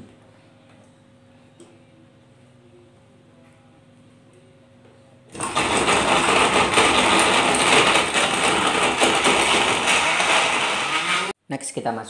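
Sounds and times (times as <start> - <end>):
blender chopping ice and food: 5.3 - 11.4.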